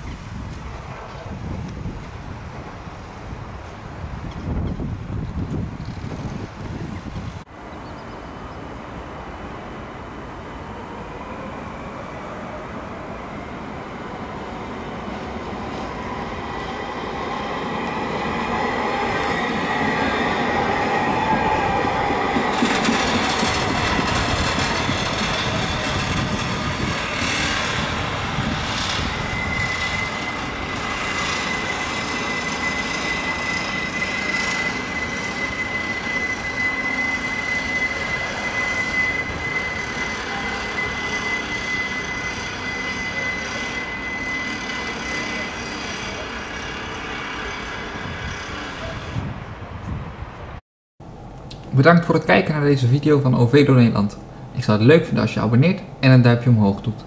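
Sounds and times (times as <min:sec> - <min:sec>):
tram running on rails: 0:00.0 - 0:56.0
high-pitched wheel squeal: 0:15.2 - 0:49.4.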